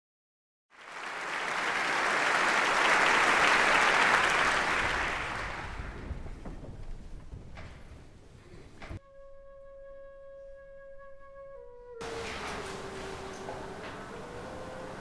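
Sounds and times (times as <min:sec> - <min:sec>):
audience applauding: 0:00.7 - 0:06.5.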